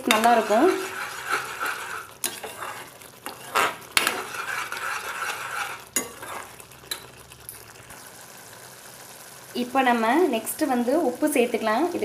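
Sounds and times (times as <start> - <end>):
wooden spatula scraping a pan: 0.0 - 6.6
faint sizzle of cooking paste: 0.0 - 12.0.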